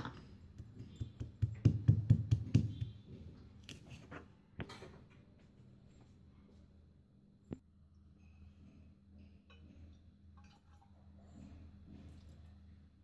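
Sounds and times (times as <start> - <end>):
stone pestle pounding in mortar: 0.6 - 3.1.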